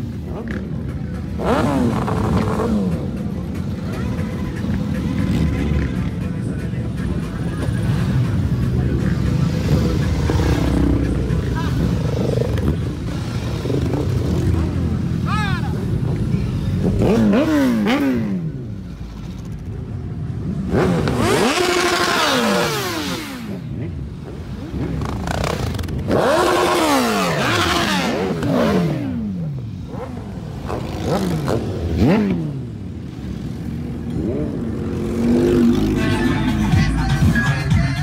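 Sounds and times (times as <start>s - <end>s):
motorcycles passing by: 0.0s - 38.0s.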